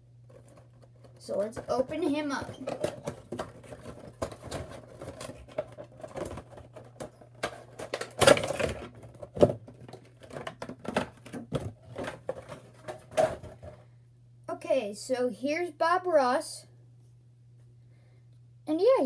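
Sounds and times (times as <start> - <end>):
plastic insert crinkling: 0.3 - 13.7.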